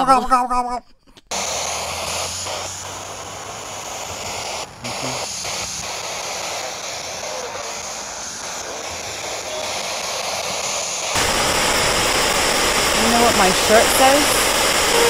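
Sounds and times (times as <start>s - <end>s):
radio static hiss: 1.3s - 15.0s.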